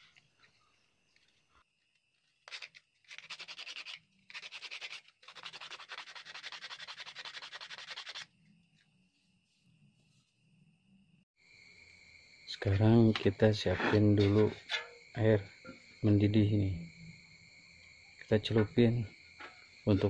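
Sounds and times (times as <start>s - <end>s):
sandpaper scraping on horn: 2.5s - 8.3s.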